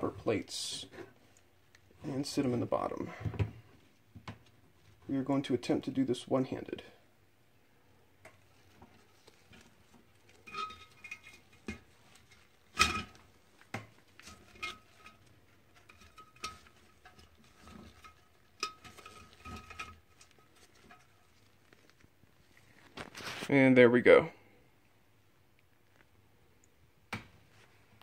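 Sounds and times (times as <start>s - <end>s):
metal plates knocking and clinking: 10.4s - 13.3s, 14.2s - 21.2s.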